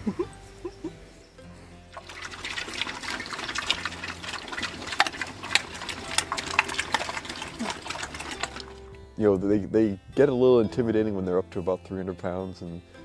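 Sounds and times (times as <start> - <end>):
pigs crunching nuts: 2.0 - 8.9.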